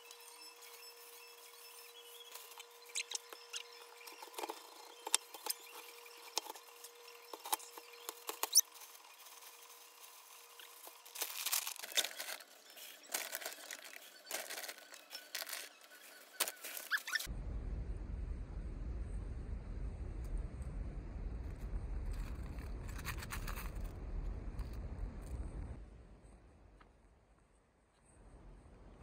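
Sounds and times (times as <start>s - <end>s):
faint steady hum: 0.0s - 29.0s
plastic bags crinkling: 2.3s - 17.3s
rice pattering into bag: 8.3s - 15.7s.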